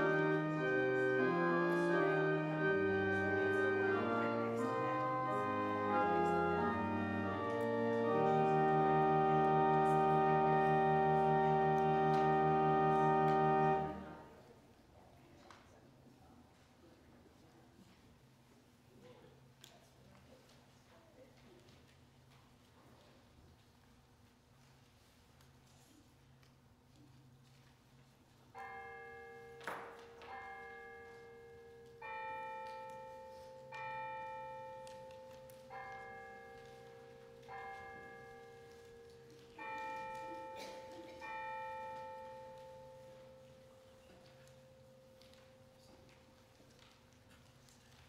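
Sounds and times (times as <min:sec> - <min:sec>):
church bell ringing: 0:00.0 - 0:14.4, 0:28.6 - 0:47.2.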